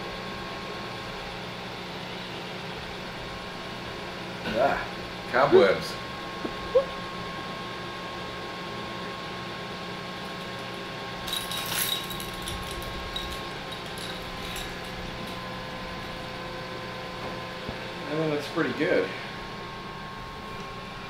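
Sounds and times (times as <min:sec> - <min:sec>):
steady mechanical hum: 0:00.0 - 0:21.0
small objects clattering and jingling: 0:11.2 - 0:16.1.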